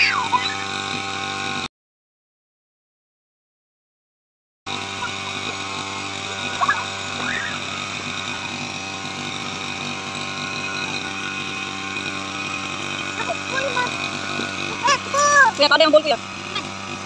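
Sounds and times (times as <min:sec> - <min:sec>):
grass trimmer engine cutting grass: 0:00.0 - 0:01.7, 0:04.7 - 0:17.0
high rising calls: 0:06.2 - 0:16.8.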